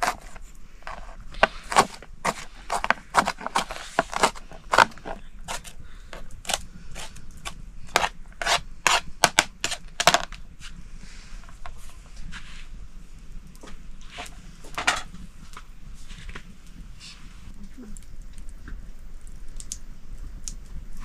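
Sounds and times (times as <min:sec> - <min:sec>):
sharp knocks and scrapes: 0:00.0 - 0:10.7.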